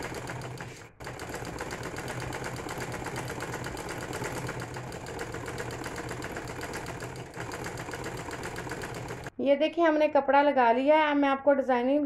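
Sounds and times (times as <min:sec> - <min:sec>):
sewing machine stitching: 0:00.0 - 0:09.3.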